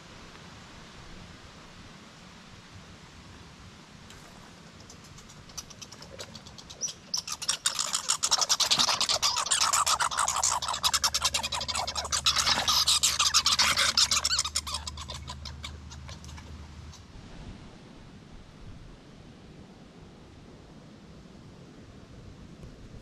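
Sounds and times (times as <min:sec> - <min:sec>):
squirrel gnawing nut shell: 0:04.7 - 0:17.0.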